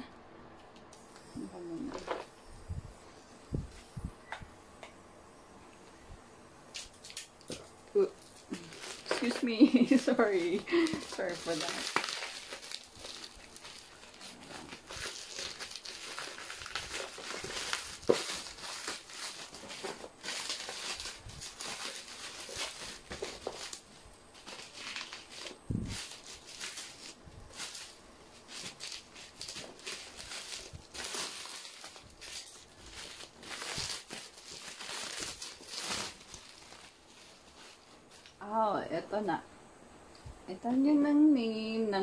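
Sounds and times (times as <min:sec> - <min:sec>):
plastic packaging crinkling: 0:06.7 - 0:38.4.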